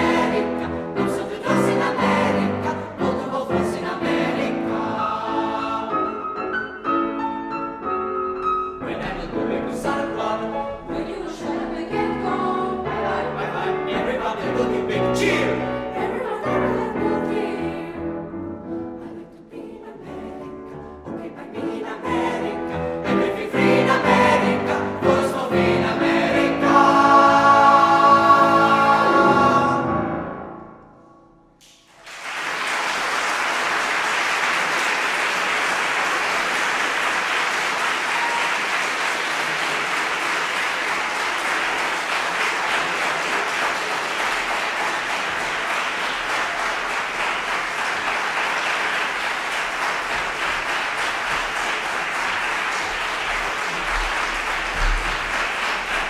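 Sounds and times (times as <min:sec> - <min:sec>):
audience applauding: 0:31.6 - 0:56.0.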